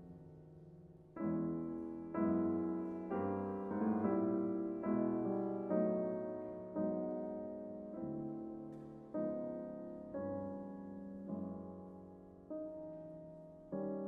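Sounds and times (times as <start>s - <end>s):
grand piano chords: 0.0s - 14.0s.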